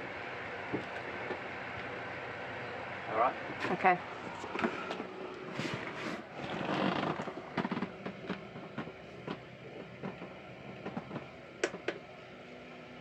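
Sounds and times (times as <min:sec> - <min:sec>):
knocks and clatters: 0:06.8 - 0:12.0.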